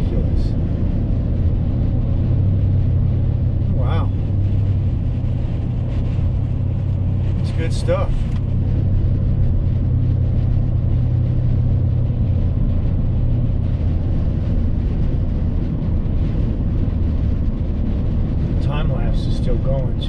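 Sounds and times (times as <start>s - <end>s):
vehicle engine and tyres rumbling: 0.0s - 20.0s.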